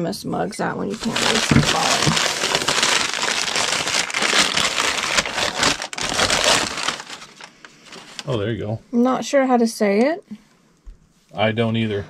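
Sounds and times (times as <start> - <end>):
plastic and paper crinkling: 0.8 - 8.4.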